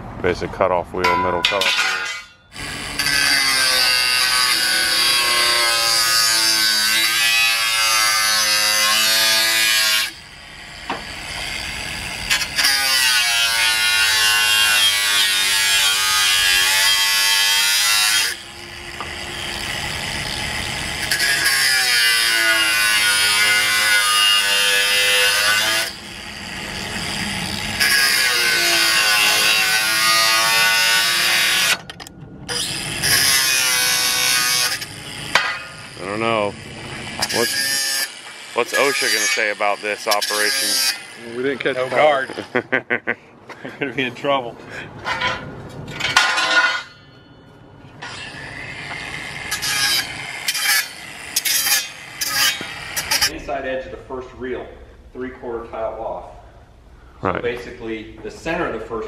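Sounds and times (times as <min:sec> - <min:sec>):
angle grinder cutting steel: 0:01.0 - 0:42.7, 0:48.0 - 0:53.4.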